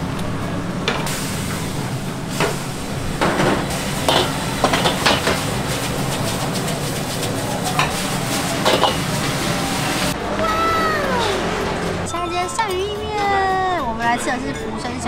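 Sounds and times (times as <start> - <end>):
wok sizzling: 0.0 - 12.4
metal spatula clanking and scraping: 3.2 - 5.5, 7.7 - 9.5.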